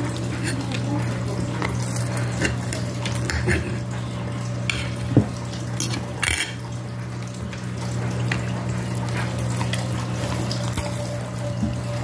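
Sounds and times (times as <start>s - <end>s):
forks clinking on ceramic plate: 5.8s - 6.6s.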